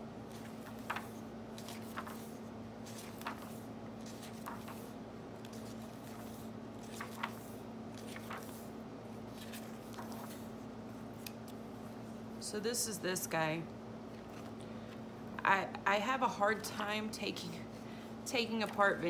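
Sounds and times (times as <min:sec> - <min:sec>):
book pages turning: 0:00.3 - 0:11.7, 0:14.1 - 0:15.0.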